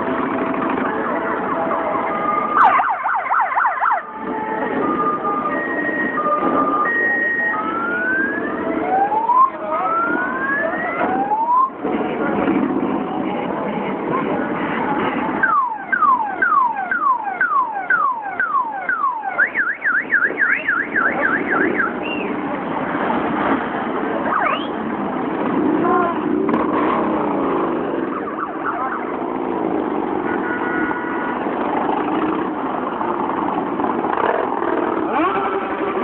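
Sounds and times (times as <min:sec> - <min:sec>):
electronic siren yelp and warble: 0:02.0 - 0:11.8, 0:15.4 - 0:22.0, 0:24.2 - 0:24.8
motorcycle engines riding past: 0:21.2 - 0:36.0.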